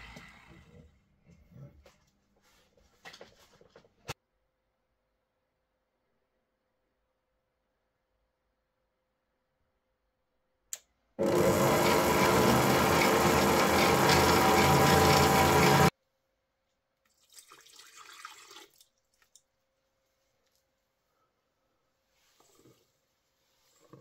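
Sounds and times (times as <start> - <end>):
stand mixer motor running: 11.2 - 15.9
water pouring into metal bowl: 17.1 - 19.3.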